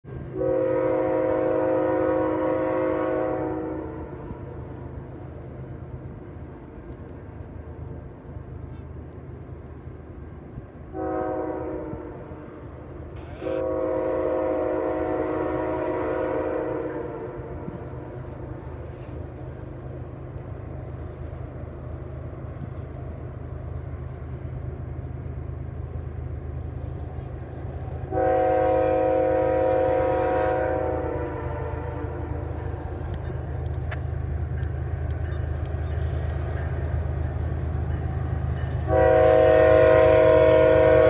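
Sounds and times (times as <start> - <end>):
low rumble of train: 0.0 - 41.0
train air horn blasts: 0.2 - 5.0, 10.9 - 12.6, 13.2 - 19.2, 28.1 - 33.0, 38.7 - 41.0.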